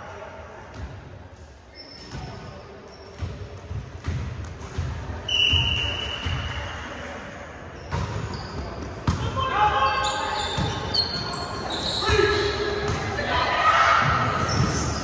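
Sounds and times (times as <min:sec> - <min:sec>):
referee's whistle blast: 0:05.3 - 0:06.4.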